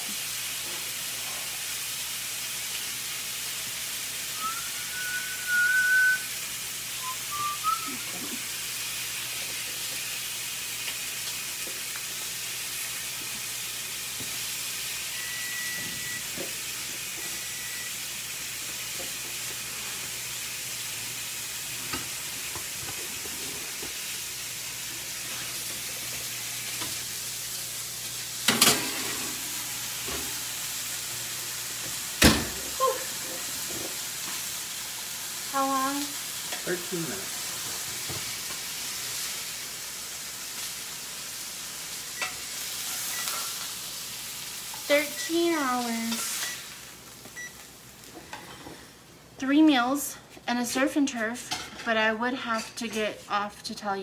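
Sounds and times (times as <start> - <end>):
food sizzling in a pan: 0.0 - 54.0.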